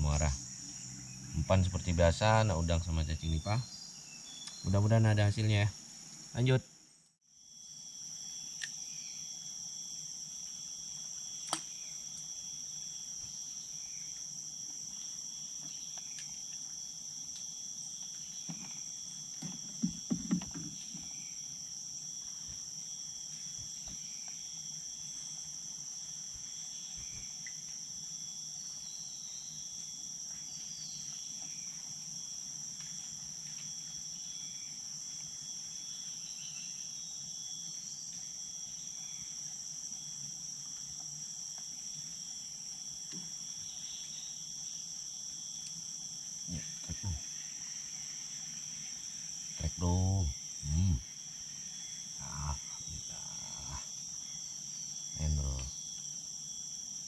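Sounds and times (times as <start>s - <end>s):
insects droning: 0.0s - 57.0s
sharp click: 11.4s - 11.7s.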